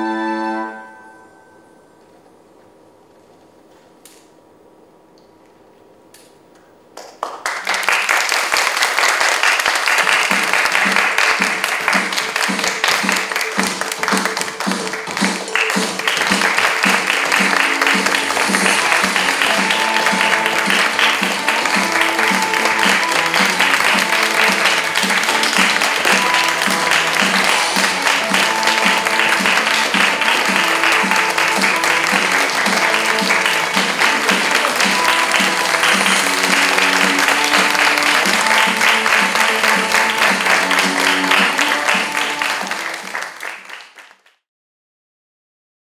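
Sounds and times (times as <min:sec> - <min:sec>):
instrumental music: 0:00.0 - 0:02.1, 0:10.3 - 0:43.1
audience applauding: 0:06.9 - 0:44.4.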